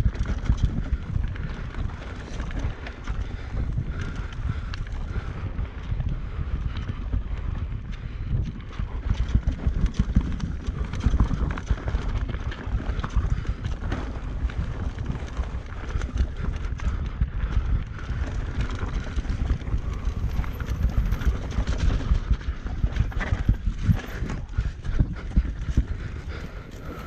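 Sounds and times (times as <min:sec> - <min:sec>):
bike chain and frame rattling: 0:00.0 - 0:27.0
wind on microphone: 0:00.0 - 0:27.0
tyres rumbling on dirt: 0:17.9 - 0:27.0.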